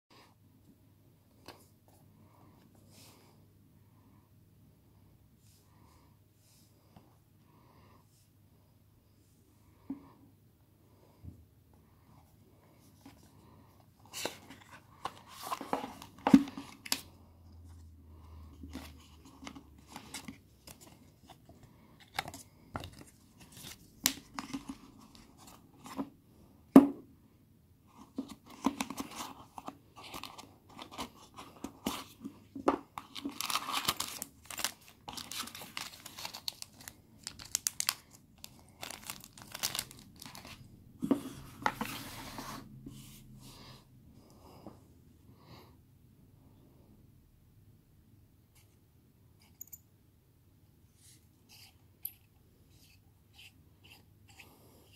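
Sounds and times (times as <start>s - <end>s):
cardboard rustling and scraping: 38.8s - 43.2s
paper sleeve sliding over box: 41.0s - 43.2s.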